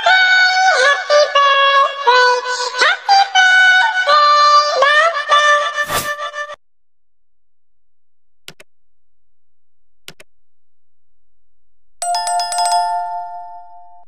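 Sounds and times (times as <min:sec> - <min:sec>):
soft mouse clicks: 0:08.5 - 0:08.7, 0:10.0 - 0:10.3
notification bell ringing: 0:12.0 - 0:14.0.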